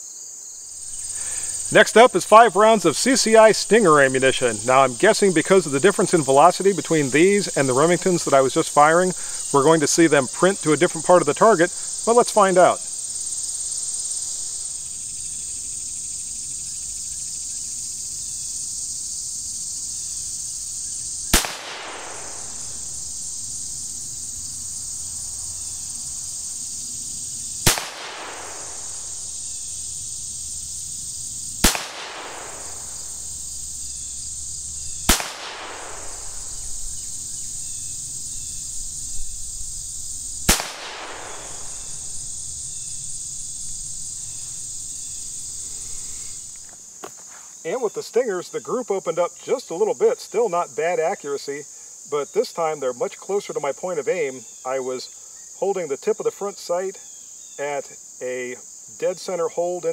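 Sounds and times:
steady high-pitched hiss: 0:00.0 - 0:59.9
pistol shots with echo: 0:21.4 - 0:22.9, 0:27.7 - 0:29.1, 0:31.6 - 0:33.1, 0:35.1 - 0:36.7, 0:40.5 - 0:42.2.

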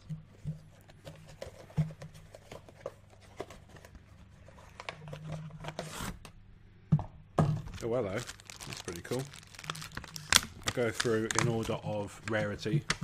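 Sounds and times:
cardboard and plastic rustling: 0:00.0 - 0:06.2, 0:07.6 - 0:13.0
packaging clicks: 0:07.8 - 0:13.0.

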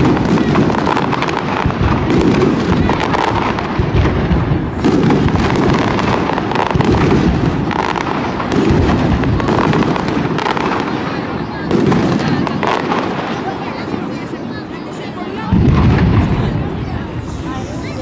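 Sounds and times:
firework shells bursting: 0:00.0 - 0:13.9.

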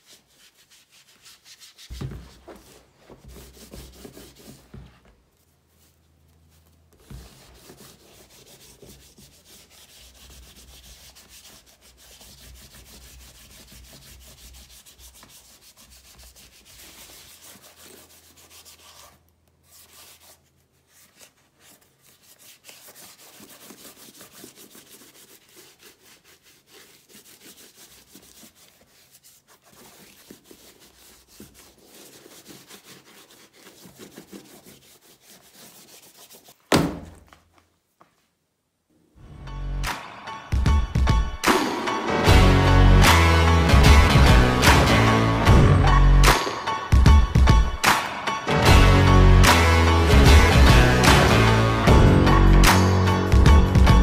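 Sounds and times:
hand rubbing leather boot: 0:00.0 - 0:38.3.

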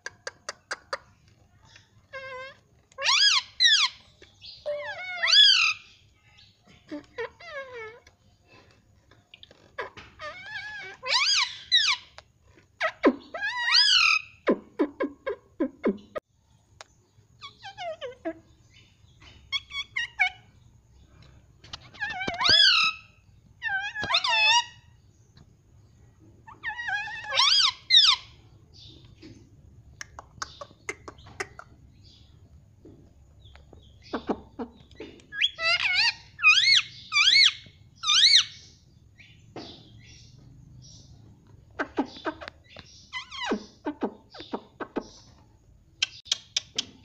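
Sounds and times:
parrot warbling calls: 0:02.0 - 0:04.0, 0:04.7 - 0:05.8, 0:09.8 - 0:12.0, 0:22.0 - 0:24.9, 0:26.5 - 0:28.4, 0:35.3 - 0:38.6.

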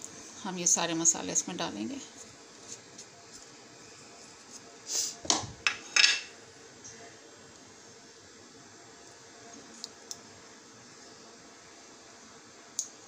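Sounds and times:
dishes and spoon clattering: 0:05.3 - 0:06.3.

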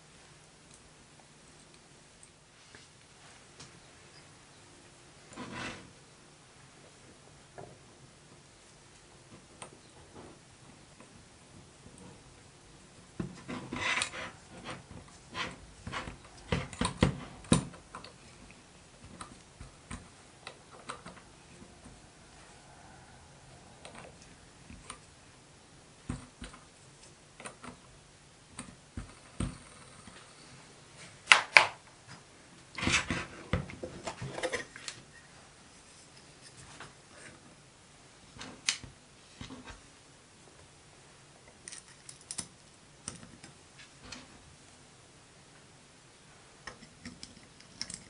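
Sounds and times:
metal parts clicking and knocking: 0:46.7 - 0:48.0.

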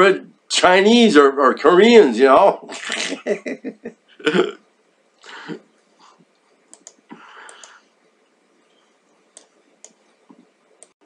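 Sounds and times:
man laughing: 0:02.6 - 0:04.6
sharp clicks: 0:06.7 - 0:07.8.

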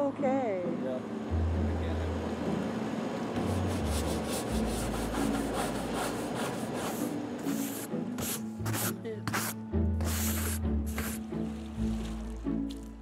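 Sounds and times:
scrub brush scrubbing canoe hull: 0:03.4 - 0:12.4.

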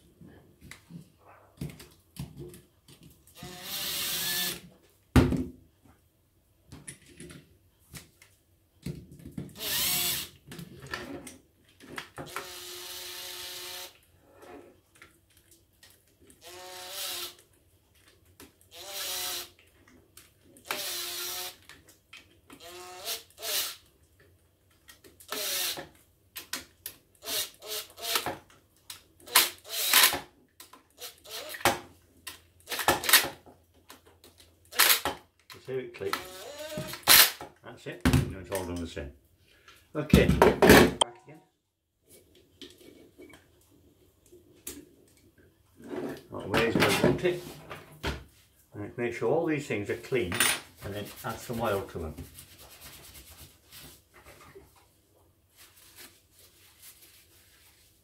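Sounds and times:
impact driver bursts: 0:25.3 - 0:25.8, 0:29.3 - 0:30.2, 0:34.7 - 0:35.1, 0:36.2 - 0:37.4.

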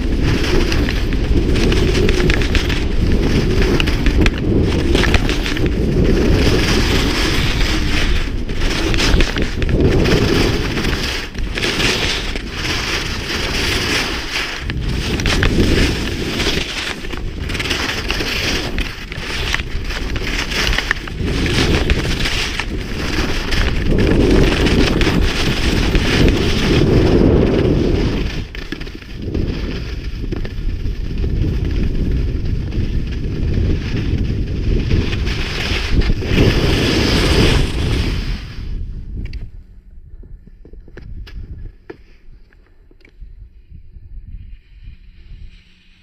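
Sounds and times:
skis scraping on snow: 0:00.0 - 0:39.5, 0:44.4 - 0:46.0
wind on microphone: 0:00.0 - 0:41.9, 0:43.1 - 0:46.0.

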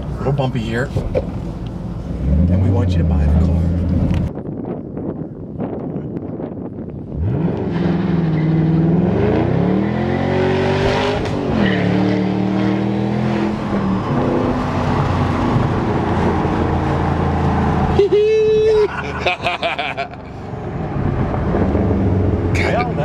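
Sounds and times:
car engine accelerating hard: 0:07.1 - 0:18.0.

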